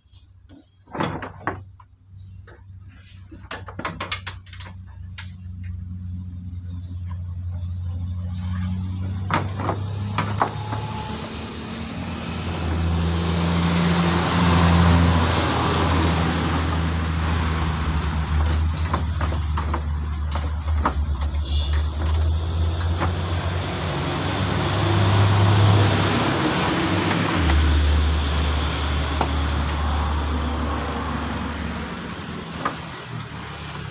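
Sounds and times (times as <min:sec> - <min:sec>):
vehicle engine running: 0:04.4 - 0:33.9
metal parts clicking: 0:16.5 - 0:23.7, 0:27.3 - 0:29.7.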